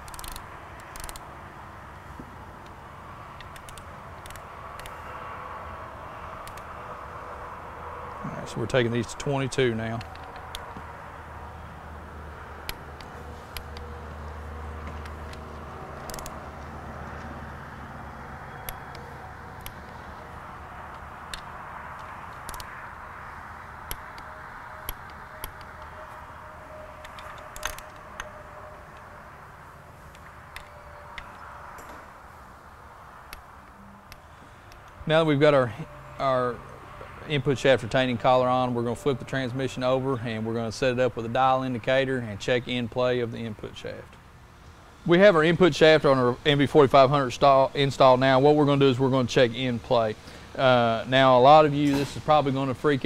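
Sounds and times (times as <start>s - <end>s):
ratchet wrench clicking: 0.0s - 1.2s, 3.4s - 5.0s, 16.0s - 16.4s, 22.4s - 22.8s, 27.0s - 28.3s
steady background hum: 0.0s - 53.0s.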